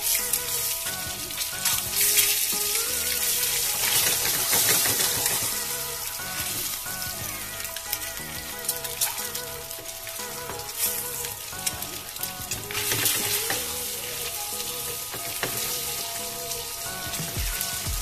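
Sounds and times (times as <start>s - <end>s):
eggs sizzling in hot oil: 0.0s - 18.0s
oil crackling: 0.0s - 18.0s.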